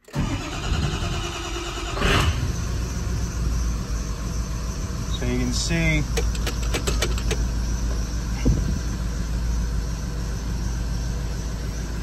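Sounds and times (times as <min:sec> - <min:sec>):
diesel engine running: 0:00.0 - 0:12.0
sharp clicks: 0:06.1 - 0:07.5.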